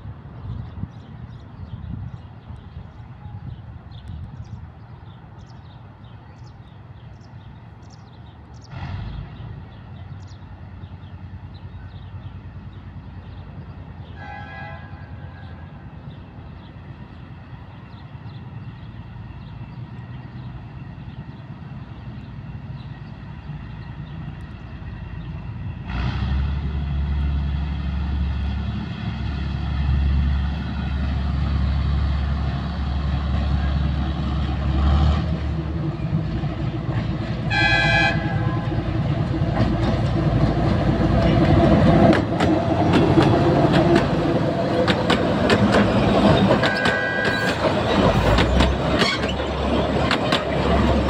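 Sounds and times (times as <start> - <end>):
diesel locomotive engine: 0.0 - 51.0
locomotive horn toot: 14.1 - 15.8, 37.5 - 38.9, 46.5 - 48.4.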